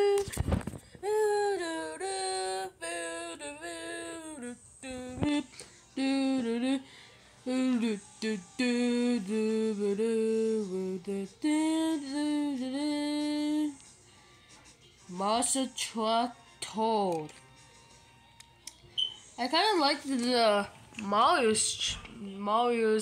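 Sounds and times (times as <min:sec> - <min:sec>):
person humming a wordless tune: 0:00.0 - 0:00.4, 0:01.0 - 0:13.9.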